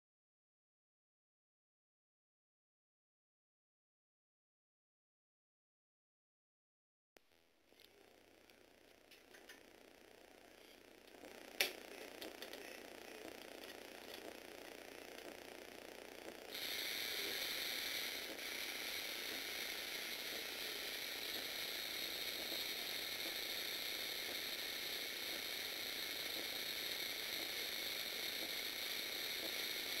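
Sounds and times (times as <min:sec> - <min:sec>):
electric motor whirring through gears: 0:07.8 - 0:30.0.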